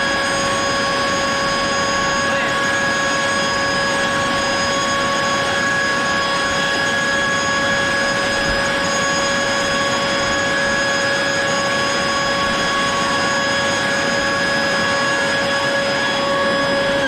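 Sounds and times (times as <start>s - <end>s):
electric blower whining: 0.0s - 17.0s.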